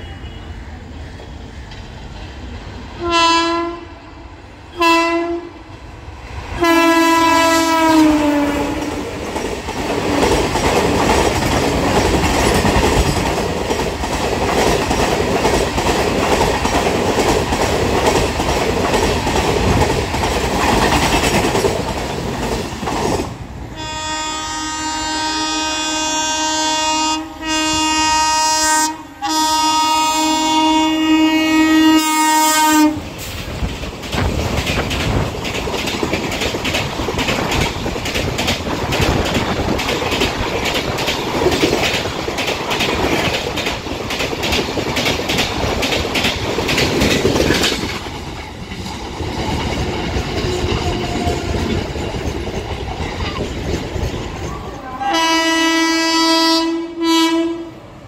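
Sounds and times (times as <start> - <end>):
train horn: 0.0 - 0.6, 3.0 - 5.7, 6.6 - 9.1, 23.7 - 33.1, 50.4 - 51.8, 54.8 - 57.8
electric train rolling by: 0.0 - 58.0
train wheels clickety-clack: 7.0 - 23.4, 32.0 - 55.5.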